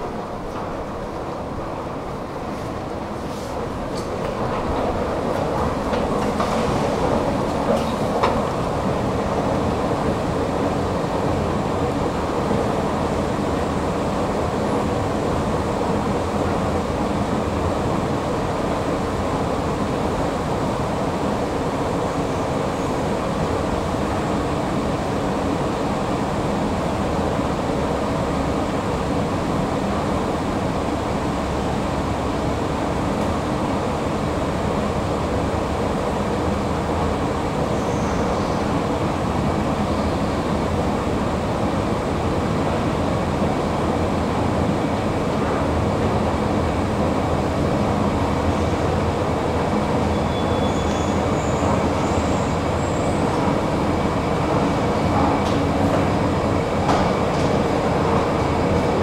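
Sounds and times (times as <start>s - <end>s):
faint high squeaks: 50.1s - 51.6s.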